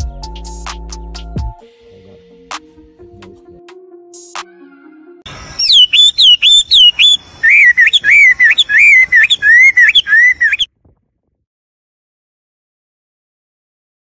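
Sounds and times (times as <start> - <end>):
bird singing whistled notes: 5.4 - 10.7.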